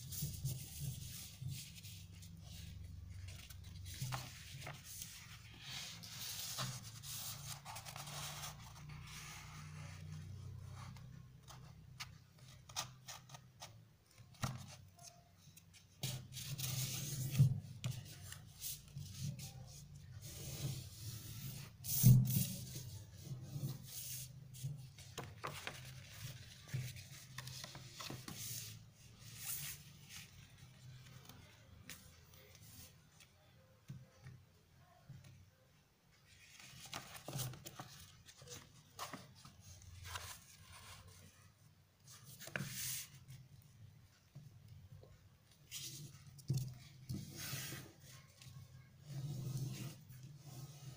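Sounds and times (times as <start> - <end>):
paper rustling being folded: 0.0 - 10.2, 10.9 - 33.3, 36.3 - 43.3.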